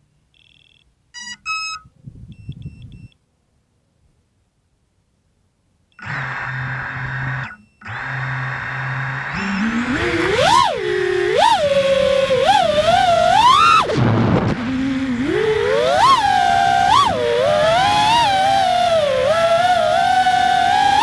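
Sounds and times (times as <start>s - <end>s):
drone motors whining: 6.0s - 21.0s.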